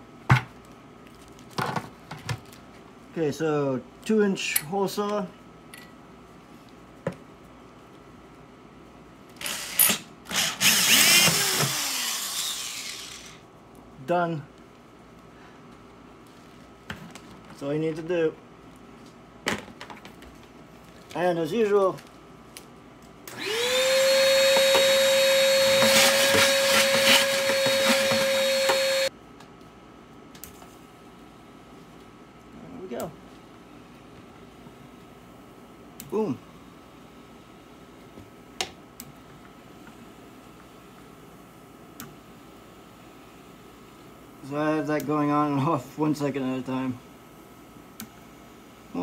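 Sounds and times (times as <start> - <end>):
power drill hole saw grinding plastic: 9.4 - 13.4, 23.3 - 29.1
shop vac motor running: 9.4 - 13.4, 23.2 - 29.1.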